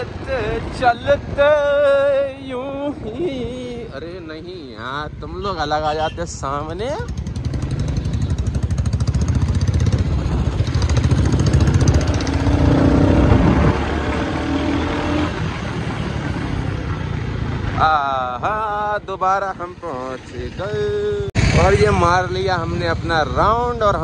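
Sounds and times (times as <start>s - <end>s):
wind noise on microphone: 0.0s - 5.8s, 6.4s - 16.2s, 18.2s - 24.0s
motorcycle engine thumping: 7.1s - 17.0s.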